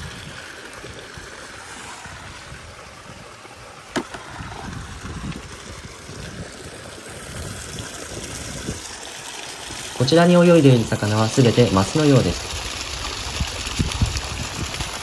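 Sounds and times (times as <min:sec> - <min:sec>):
water splashing into tank: 0:00.0 - 0:15.0.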